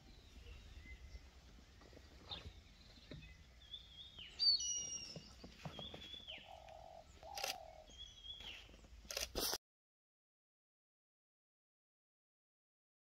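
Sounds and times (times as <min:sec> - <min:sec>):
bird whistled calls: 0:04.2 - 0:05.3.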